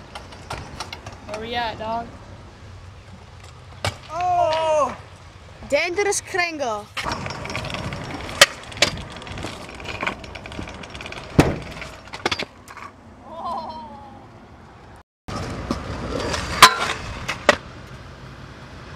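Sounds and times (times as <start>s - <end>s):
scooter wheels rolling on pavement: 0.0s - 13.1s, 14.6s - 18.9s
scooter landing on metal rail: 7.0s - 12.9s, 15.3s - 17.6s
scooter clacking on ground: 7.0s - 13.0s.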